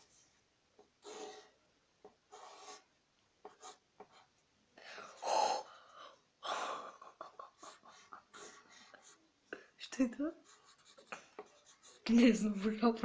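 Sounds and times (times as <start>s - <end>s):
boys giggling and gasping: 4.9s - 9.6s.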